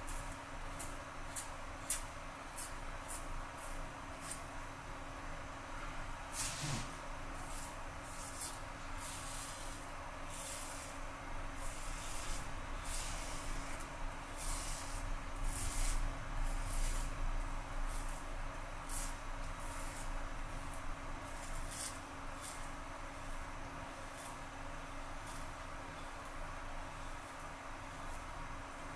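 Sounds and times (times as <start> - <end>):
razor scraping stubble: 11.6 - 17.2.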